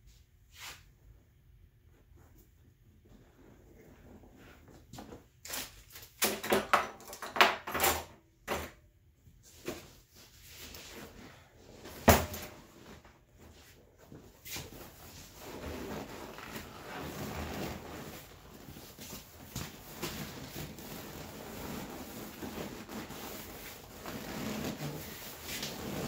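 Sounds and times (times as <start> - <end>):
vinyl seat cover rustling: 12.6 - 26.0.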